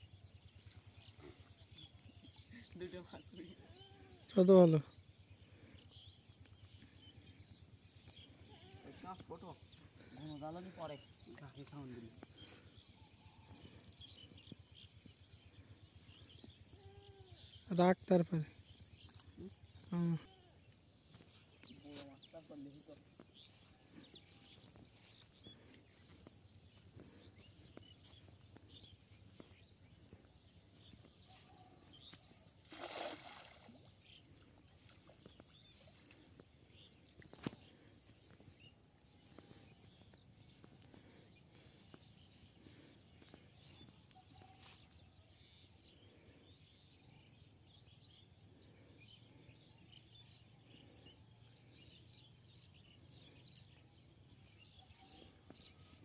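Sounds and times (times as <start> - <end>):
faint bird calls: 5.3 - 17.7, 54.8 - 56.0
net splashing into water: 32.6 - 34.0.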